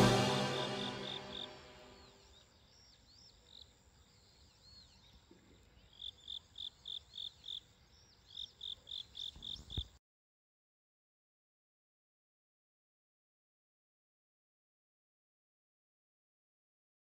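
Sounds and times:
faint higher chirps: 0.0 - 2.4
crickets chirping: 0.4 - 2.7, 5.8 - 9.9.

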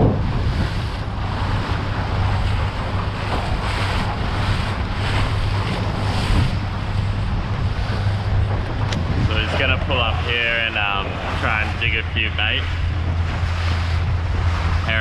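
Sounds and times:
outboard motor running: 0.0 - 15.0
water splashing at hull: 0.0 - 15.0
wind buffeting microphone: 0.0 - 15.0.

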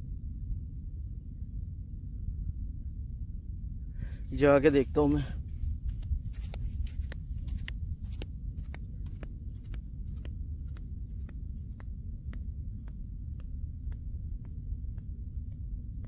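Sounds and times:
wind rumble on microphone: 0.0 - 16.0
footsteps on crusted sand: 4.3 - 15.6.

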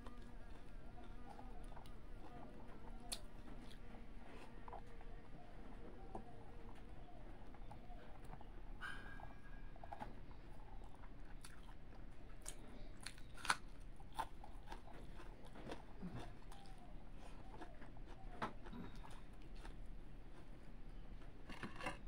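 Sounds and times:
person chewing: 9.9 - 22.0.

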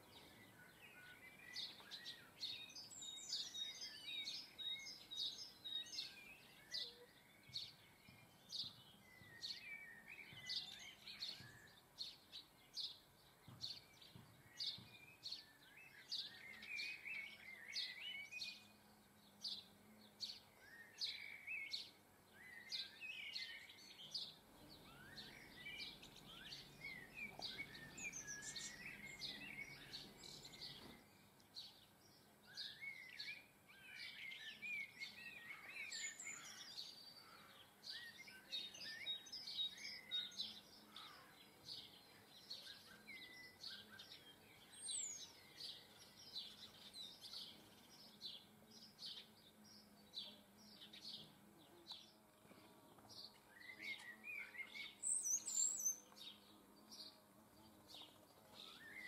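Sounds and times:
birds chirping and twittering: 0.0 - 59.0.

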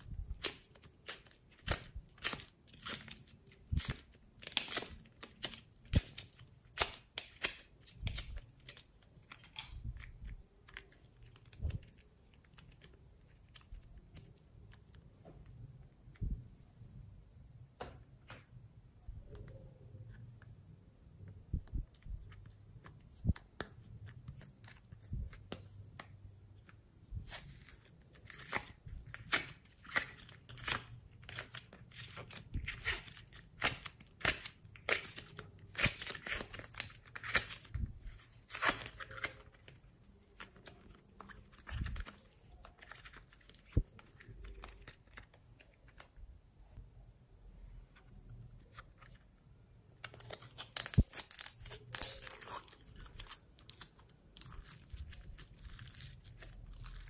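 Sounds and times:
foam clay crackling and tearing: 50.1 - 57.0.

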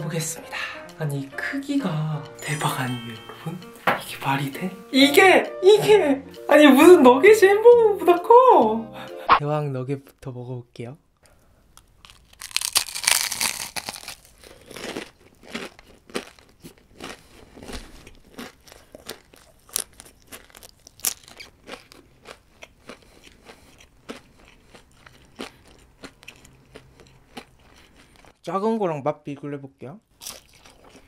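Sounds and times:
crisp coating crackling on bite: 11.8 - 28.3
chewing with crunches: 11.8 - 28.4, 30.2 - 31.0.

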